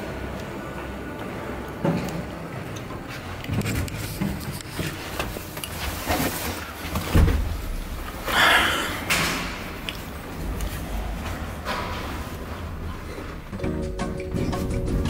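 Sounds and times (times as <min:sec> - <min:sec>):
elevator doors sliding shut: 0:07.0 - 0:15.0.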